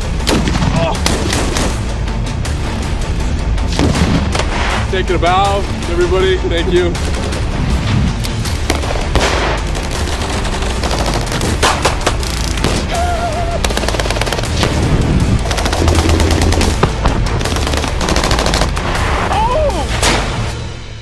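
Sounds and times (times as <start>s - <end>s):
automatic gunfire: 8.7s - 12.0s, 13.6s - 14.8s, 15.4s - 18.9s.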